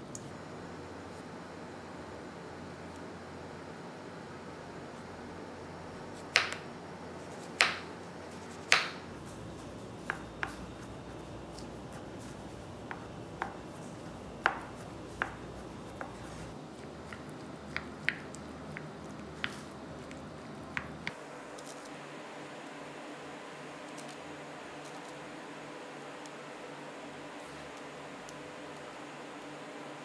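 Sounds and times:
knife tapping while dicing: 0:06.3 - 0:06.6, 0:07.6 - 0:07.9, 0:08.7 - 0:09.0, 0:10.0 - 0:10.7, 0:12.8 - 0:13.7, 0:14.4 - 0:16.3, 0:17.0 - 0:19.6.

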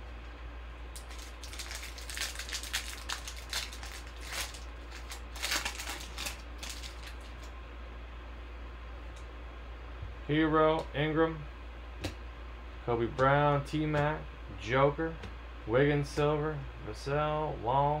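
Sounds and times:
foil wrapper crinkling and tearing: 0:01.0 - 0:07.5.

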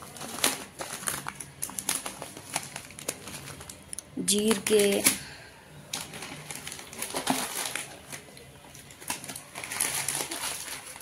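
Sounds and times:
plastic bags crinkling and rustling: 0:00.0 - 0:11.0.

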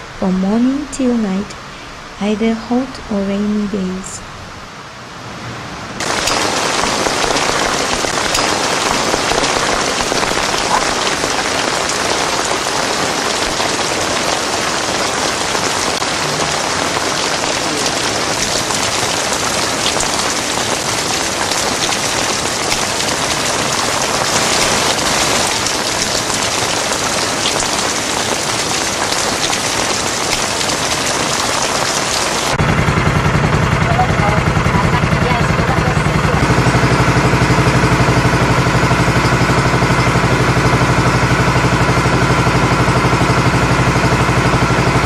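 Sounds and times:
heavy rain pouring: 0:00.0 - 0:45.0.

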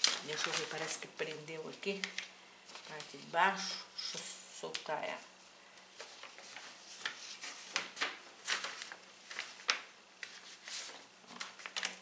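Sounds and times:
paper rustling and scraping: 0:00.0 - 0:01.1, 0:05.9 - 0:12.0.

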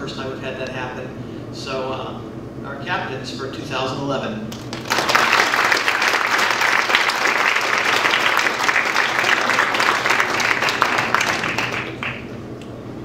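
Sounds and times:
audience applauding: 0:04.6 - 0:12.4.

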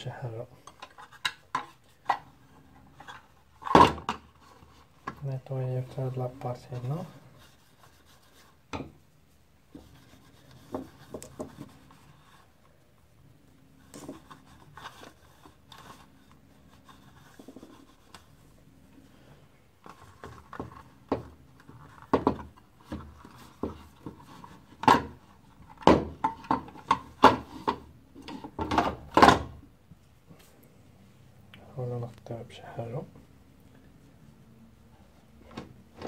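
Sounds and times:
plastic parts rubbing and tapping: 0:09.7 - 0:12.4, 0:13.9 - 0:18.4, 0:19.8 - 0:29.5.

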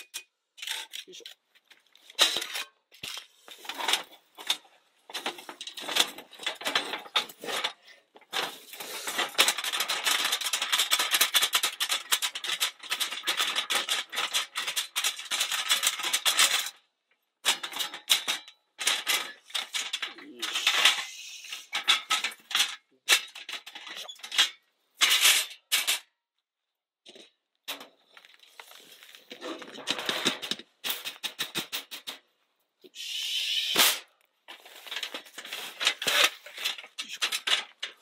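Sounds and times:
charcoal pieces rattling into metal pot: 0:02.1 - 0:16.8, 0:17.4 - 0:26.0, 0:27.1 - 0:31.7, 0:33.8 - 0:38.0.

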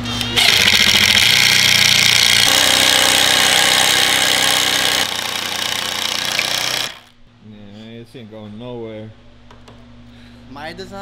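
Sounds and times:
impact driver driving screw into wood: 0:00.4 - 0:07.1.

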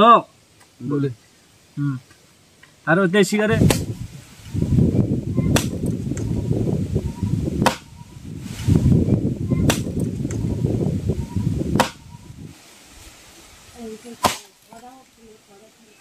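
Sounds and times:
low rumbling noise: 0:03.4 - 0:12.6
axe chopping wood: 0:03.6 - 0:03.9, 0:05.5 - 0:06.3, 0:07.6 - 0:07.9, 0:09.6 - 0:10.1, 0:11.7 - 0:12.0, 0:14.2 - 0:14.5.

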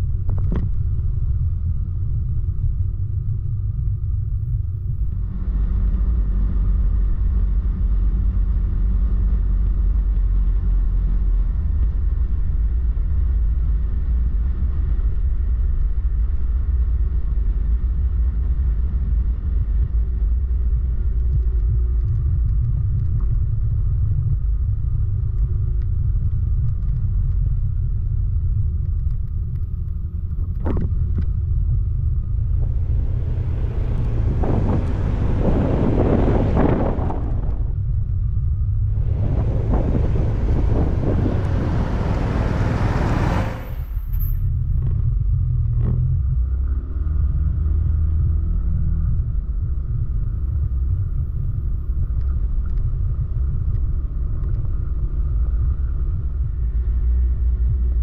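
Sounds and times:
wind on microphone: 0:19.0 - 0:46.8
motorcycle engine rumble: 0:29.4 - 0:46.8.

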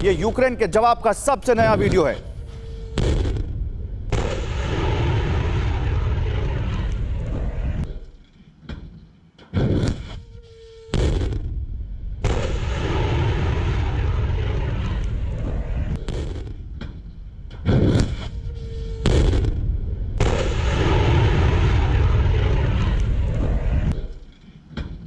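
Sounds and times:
rockets launching with rushing roar: 0:04.1 - 0:07.8, 0:12.2 - 0:16.6, 0:20.2 - 0:24.0.

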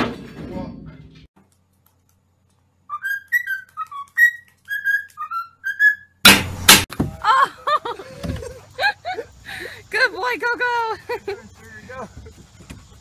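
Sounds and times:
cockatiel whistling a tune: 0:02.9 - 0:06.2.

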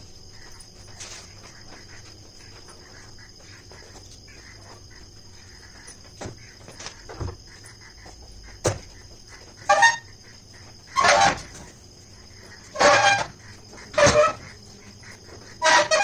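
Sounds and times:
fowl honking calls: 0:08.9 - 0:16.0.

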